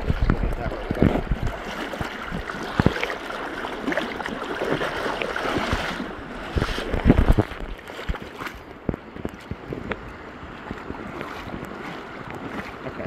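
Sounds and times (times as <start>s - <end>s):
river water rushing: 0.0s - 8.7s.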